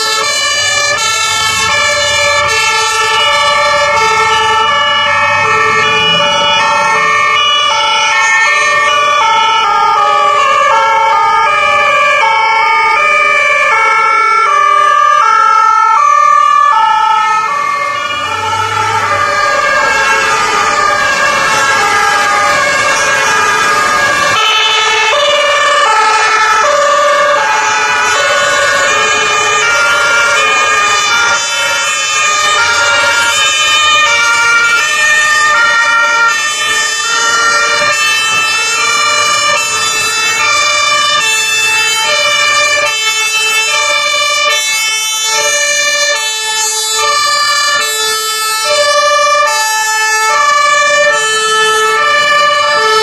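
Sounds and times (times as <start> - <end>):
two-tone emergency sirens: 0.0 - 53.0
low vehicle rumble: 0.4 - 8.4.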